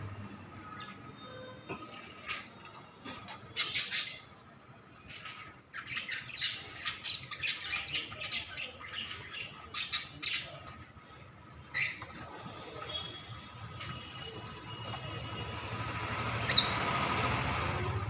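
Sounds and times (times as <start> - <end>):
cockatiels squawking and chirping: 3.3 - 4.4, 5.1 - 10.8, 11.7 - 13.0.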